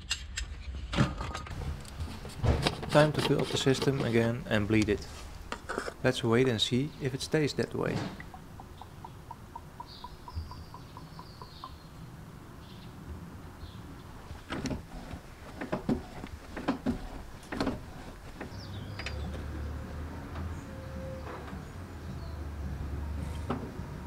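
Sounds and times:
birds chirping: 1.6s - 24.0s
clutch pedal knocking: 14.3s - 19.4s.

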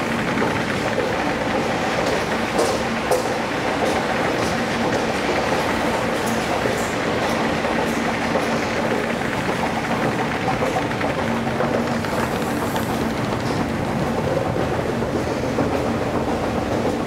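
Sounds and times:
escalator rumble and clatter: 0.0s - 17.0s.

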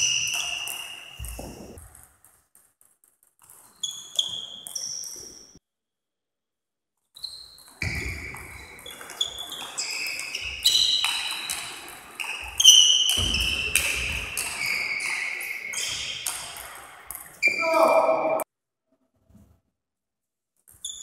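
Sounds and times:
shoes squeaking on floor: 0.0s - 2.2s, 3.4s - 5.6s, 7.1s - 18.4s, 20.7s - 21.0s.

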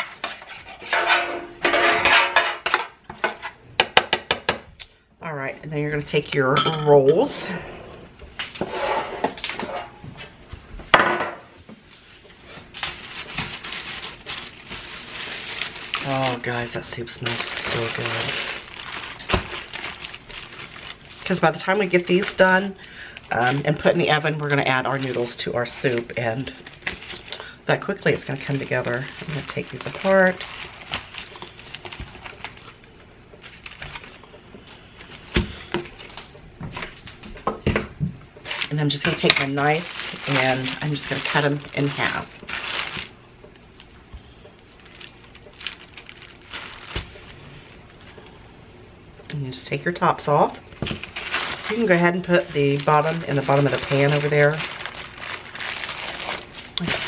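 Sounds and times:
metal baking pan shifted: 0.8s - 2.7s
rustling: 11.8s - 21.4s, 50.8s - 57.0s.

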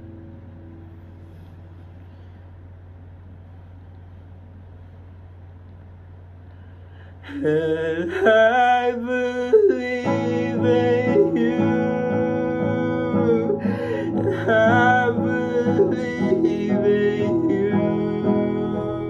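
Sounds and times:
acoustic guitar chords: 0.0s - 1.9s, 8.4s - 19.0s
faint low hum: 0.0s - 19.0s
man singing slow melody: 7.2s - 19.0s.

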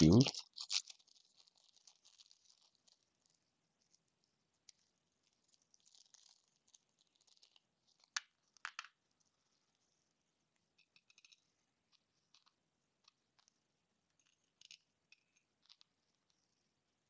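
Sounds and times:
small ticks: 10.8s - 16.4s.

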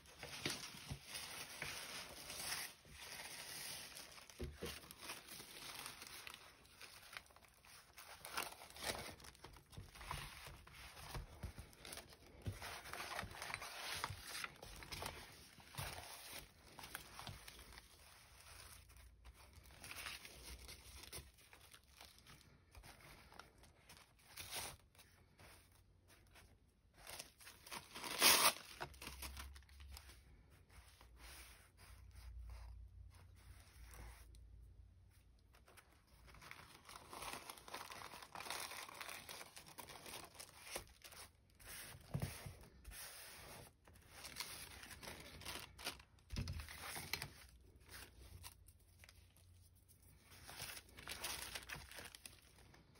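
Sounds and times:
paper tearing and rustling: 27.0s - 29.9s.

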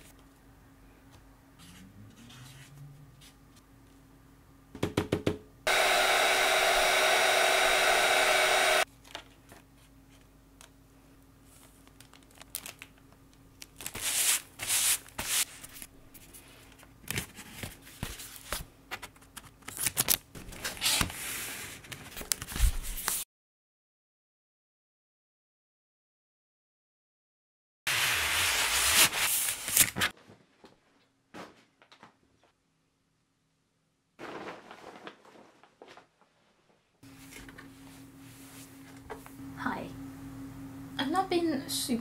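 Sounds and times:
loud whirring hiss: 5.7s - 8.8s
paper rustling: 11.4s - 13.0s, 13.6s - 23.2s, 28.4s - 30.8s, 34.2s - 37.6s
tape pulled from a roll: 27.9s - 30.1s.

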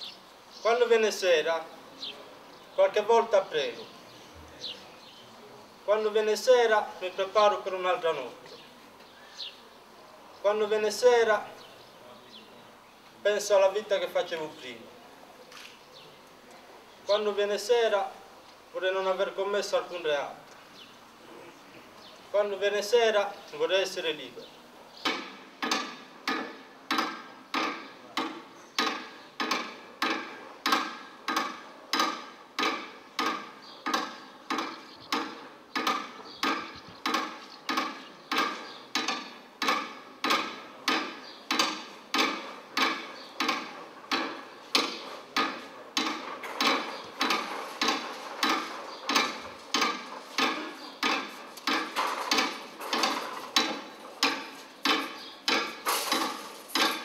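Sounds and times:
chair clanging against metal bars: 25.0s - 57.0s.

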